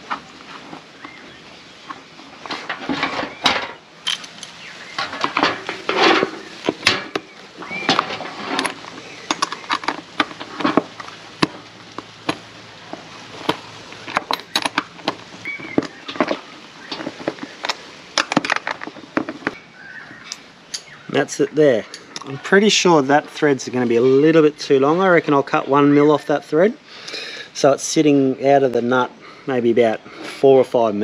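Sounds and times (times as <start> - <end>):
metal clinks and clicks: 3.1 - 7.2, 7.9 - 11.2, 14.0 - 15.2
plastic board scraping: 4.6 - 19.6.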